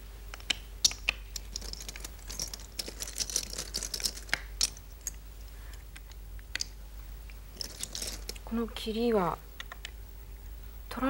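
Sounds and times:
game stones clicking on board: 0.3 - 6.8, 7.6 - 8.4.

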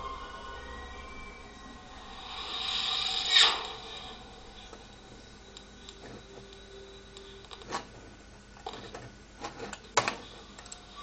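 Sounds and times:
faint music: 0.0 - 11.0
hiss: 2.0 - 5.0.

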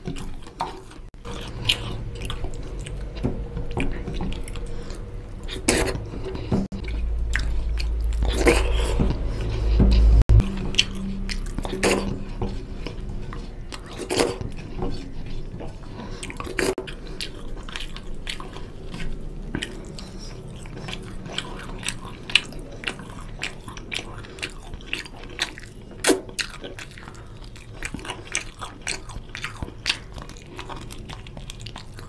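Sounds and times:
chewing: 0.0 - 32.0
wet mouth clicks: 25.4 - 27.0.

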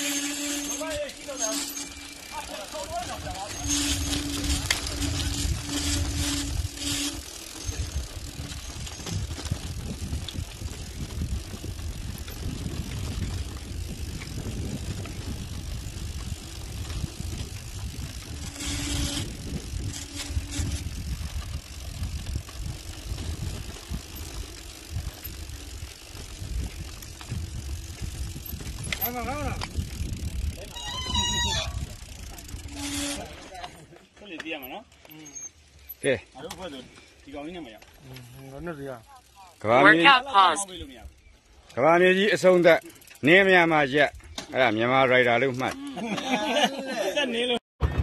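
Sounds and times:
bike tyre and frame noise: 0.0 - 48.0
wind rumble on microphone: 3.0 - 33.3.

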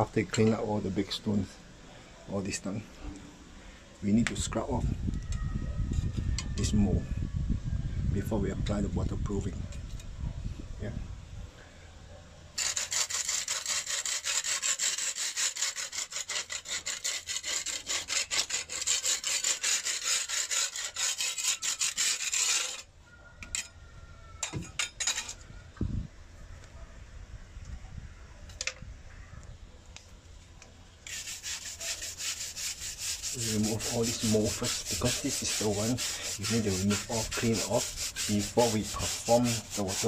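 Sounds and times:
scraper rasping on wet concrete: 12.6 - 22.9, 31.0 - 40.0.

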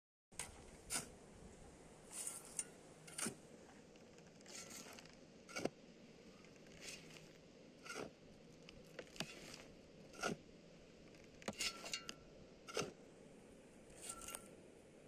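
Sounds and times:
shovelled soil and gravel scraping: 0.4 - 1.2, 2.1 - 10.5, 11.4 - 13.0, 13.9 - 14.5.

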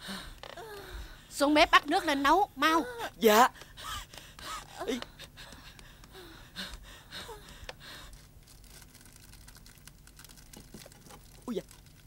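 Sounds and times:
faint gasps and breaths: 3.0 - 8.3.

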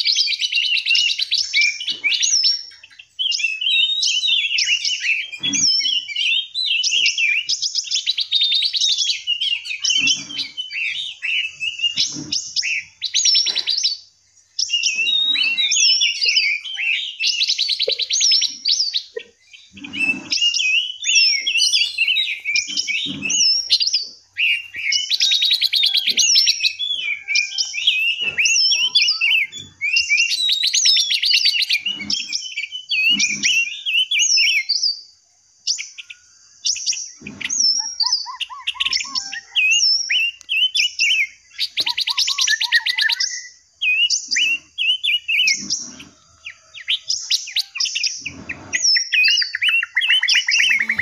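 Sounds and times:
songbirds singing and chirping: 0.0 - 51.0
fast rattling bird trills: 35.7 - 51.0.

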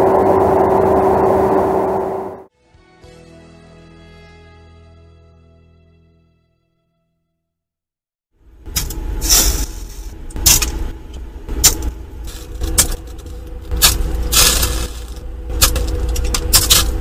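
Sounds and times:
steady low rumble: 0.0 - 2.5, 8.4 - 17.0.

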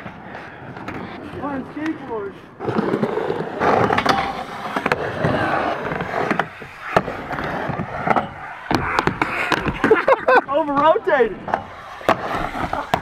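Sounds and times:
skateboard wheels rolling: 0.0 - 13.0
skateboard clacking on surface: 3.4 - 5.0, 6.0 - 13.0.

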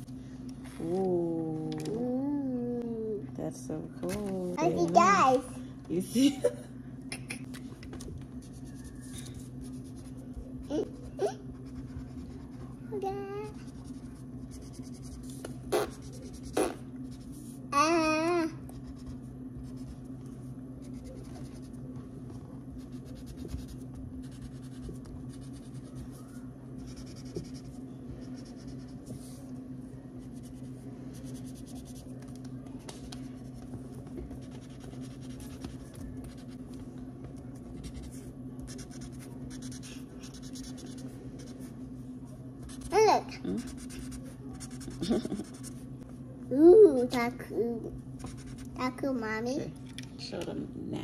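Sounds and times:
crayon scratching on paper: 43.6 - 45.8.

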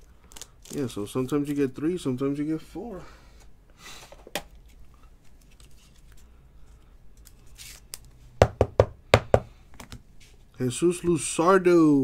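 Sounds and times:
cards rustling: 4.6 - 8.2.

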